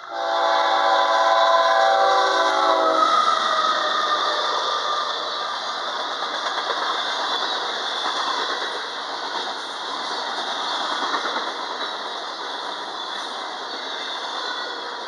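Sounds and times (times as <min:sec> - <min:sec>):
train wheels rushing on rail: 0:00.0 - 0:15.0
clickety-clack of wheels: 0:05.5 - 0:15.0.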